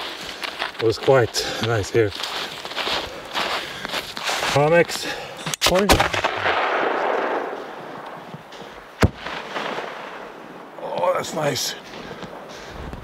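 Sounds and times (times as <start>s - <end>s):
firework mortar bang: 9.0s - 10.2s.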